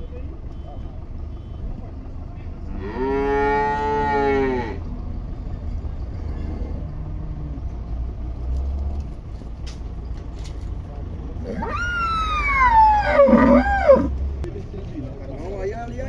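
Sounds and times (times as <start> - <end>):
cow mooing: 2.7 - 4.9, 11.5 - 14.2.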